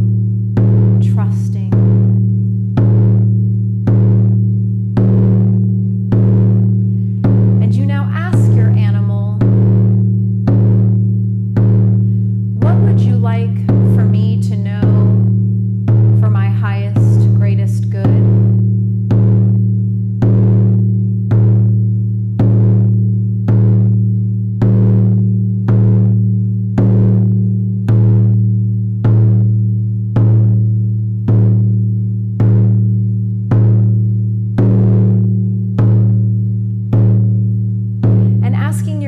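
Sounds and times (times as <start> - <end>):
deep ringing drum beats: 0.0 - 39.0.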